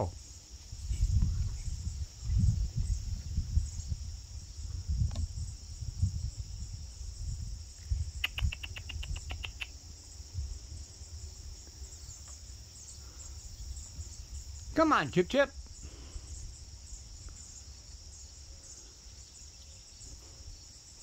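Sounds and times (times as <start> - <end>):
low rumble on microphone: 0.0 - 8.2
insects chirring: 0.0 - 21.0
sharp chirps: 8.2 - 9.7.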